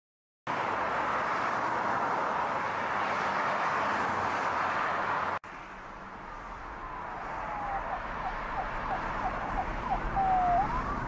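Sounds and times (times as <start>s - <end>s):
busy road traffic: 0.5s - 11.0s.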